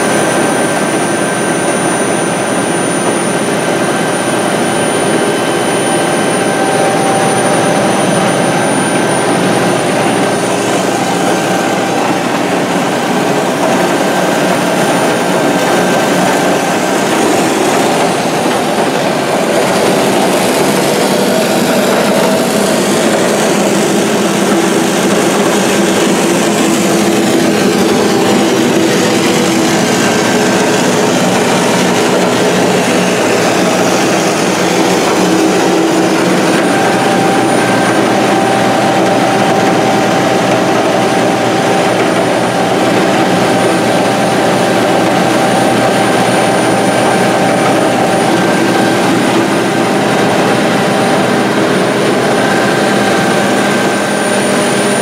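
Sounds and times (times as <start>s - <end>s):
diesel pump running: 0.0s - 55.0s.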